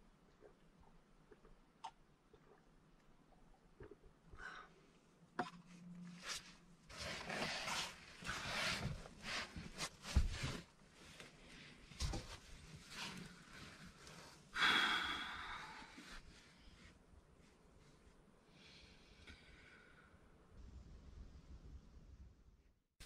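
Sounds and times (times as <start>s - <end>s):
clothes rustling: 5.6s - 14.5s
long breathy exhale: 14.6s - 16.1s.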